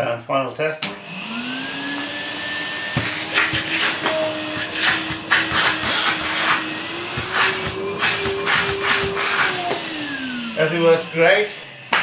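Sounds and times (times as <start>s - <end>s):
vacuum cleaner motor whine: 0.8s - 12.0s.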